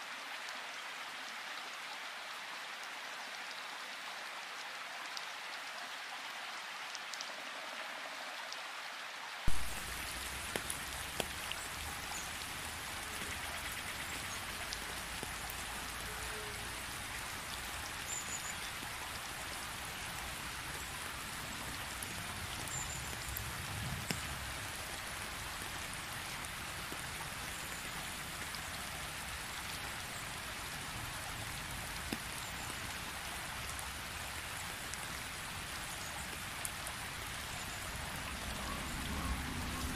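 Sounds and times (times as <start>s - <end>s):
steady rain: 0.0s - 39.9s
drops ticking on wet ground: 9.5s - 39.9s.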